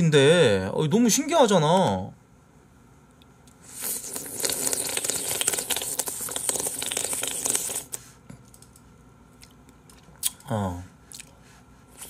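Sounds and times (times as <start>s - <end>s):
wet mouth clicks eating ice cream: 9.4s - 10.4s.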